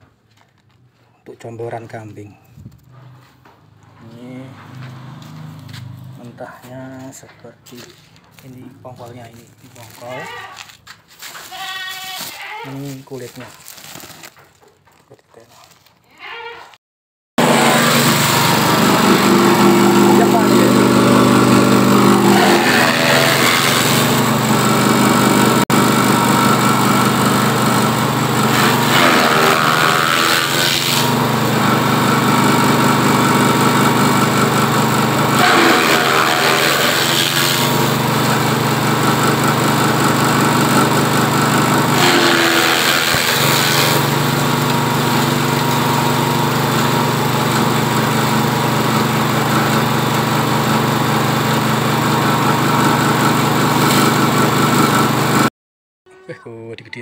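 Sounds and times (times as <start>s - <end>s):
small petrol engine running: 2.9s - 10.7s, 17.4s - 55.5s
chopper grinding stalks: 17.4s - 50.6s.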